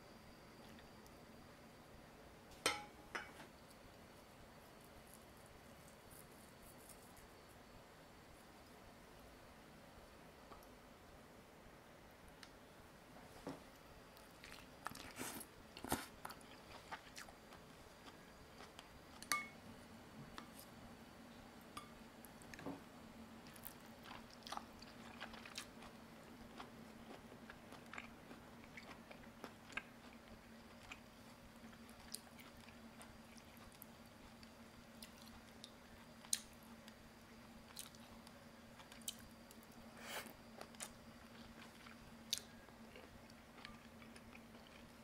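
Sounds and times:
utensils tapping ceramic bowl: 19.3 - 19.6.

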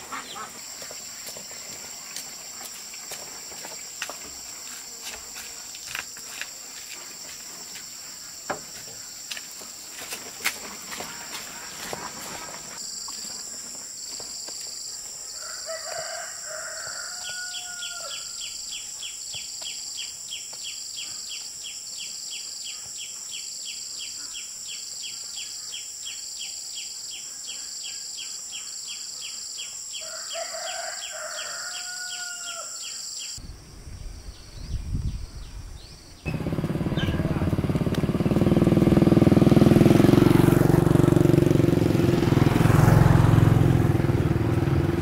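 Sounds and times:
rooster crowing: 15.4 - 18.5, 30.0 - 32.9.

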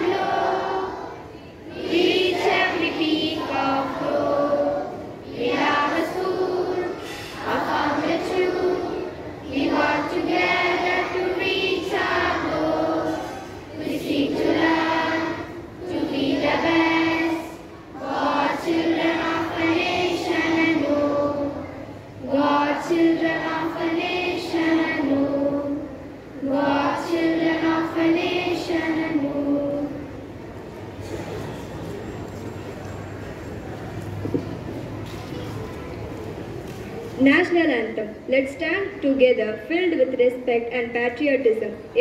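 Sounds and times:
children singing in unison: 0.0 - 30.4.

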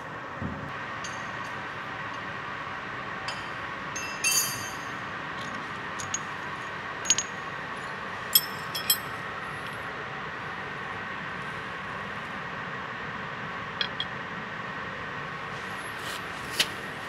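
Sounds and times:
metal tools clinking on gears: 4.0 - 6.3, 7.0 - 7.4, 8.3 - 9.1, 13.8 - 14.1.

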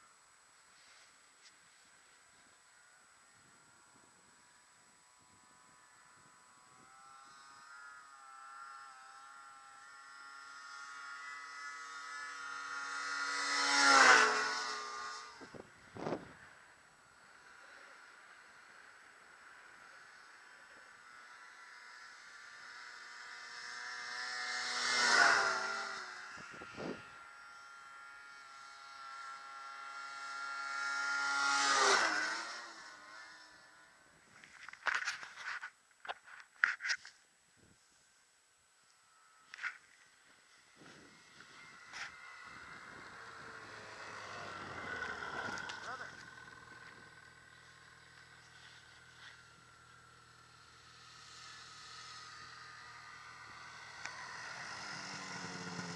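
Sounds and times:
snowmobile engines passing: 0.0 - 55.9.

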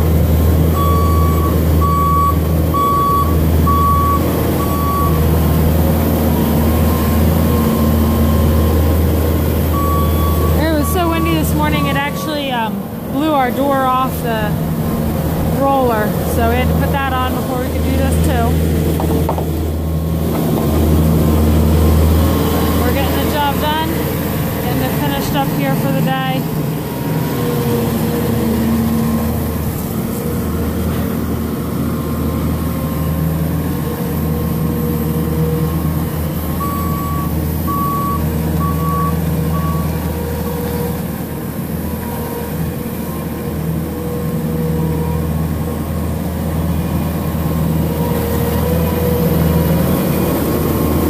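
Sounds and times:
diesel engine running: 0.0 - 51.0
backup alarm beeping: 0.8 - 5.3, 9.7 - 14.6, 36.6 - 39.9.

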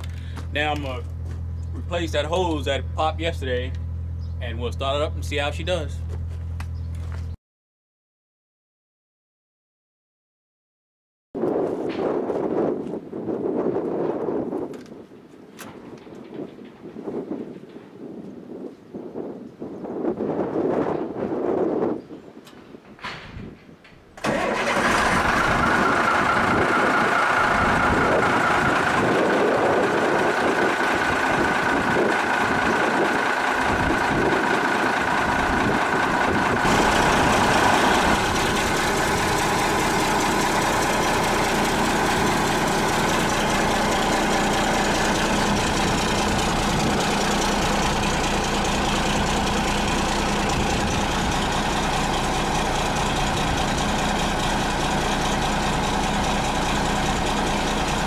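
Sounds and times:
diesel engine idling: 0.0 - 6.6, 24.2 - 58.0.

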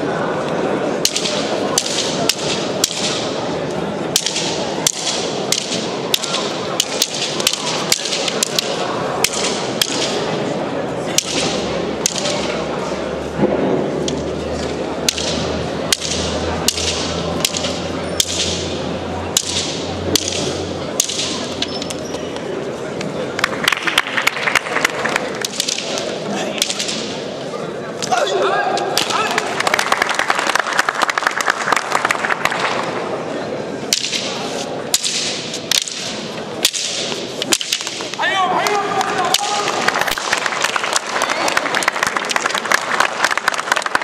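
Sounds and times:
crowd murmur: 0.0 - 44.0
wooden sticks clacking: 1.0 - 3.4, 4.1 - 10.4, 11.1 - 12.6, 14.0 - 22.5, 24.4 - 27.3, 28.0 - 29.5, 33.9 - 41.0.

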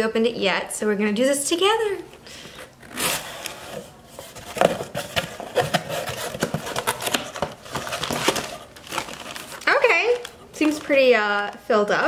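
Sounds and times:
packaged items rustling: 2.8 - 11.6.

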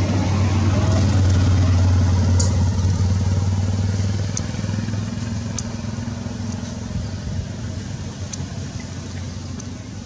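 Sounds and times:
vehicle engine droning: 0.0 - 10.0
faint high ticks: 4.3 - 4.5, 5.5 - 5.7, 8.3 - 9.8.

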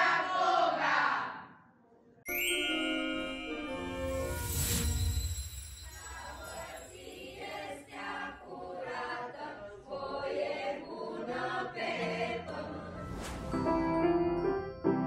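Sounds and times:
choir singing: 0.0 - 1.6, 5.9 - 14.5.

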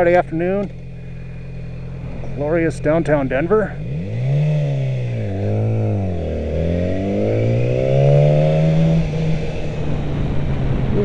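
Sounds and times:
motorcycle engine revving: 0.0 - 11.0.

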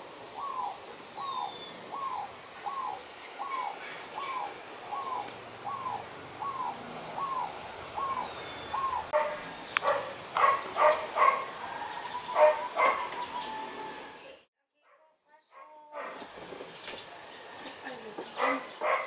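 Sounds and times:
dove cooing: 0.3 - 14.2.

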